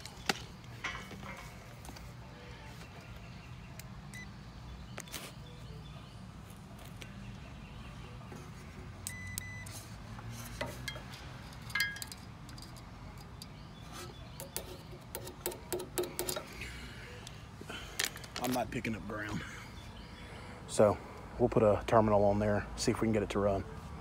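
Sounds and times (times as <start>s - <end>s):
short electronic beep: 9.1s - 9.7s.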